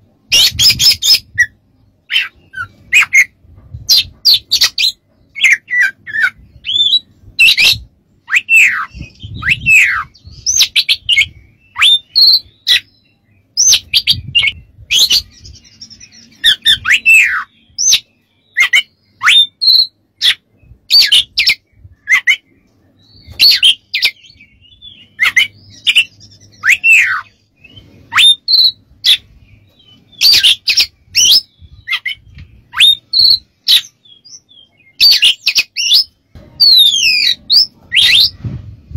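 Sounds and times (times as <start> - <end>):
bird singing chips and whistles: 23.1 - 38.4.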